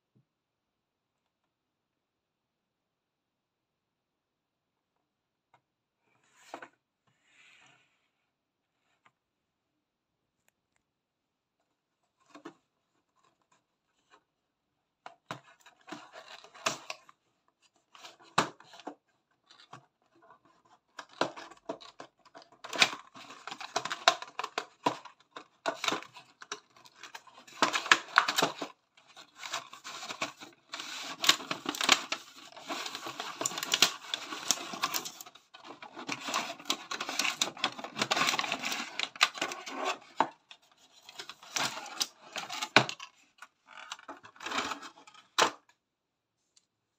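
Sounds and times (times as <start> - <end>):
cardboard and plastic rustling: 15.1 - 45.7.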